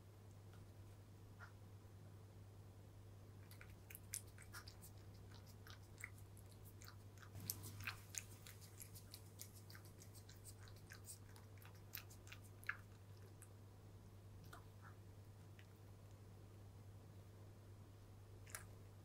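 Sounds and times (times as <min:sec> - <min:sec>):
cat crunching dry kibble: 0:03.4 - 0:13.5.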